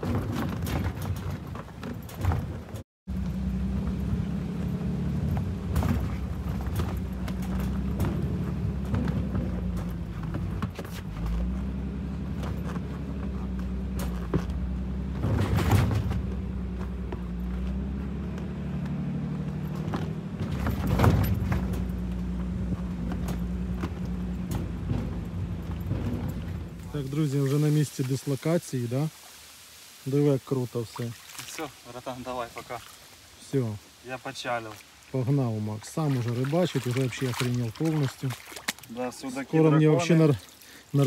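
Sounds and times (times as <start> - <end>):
car engine and road drone: 2.2 - 27.6
car bumps: 5.1 - 27.1.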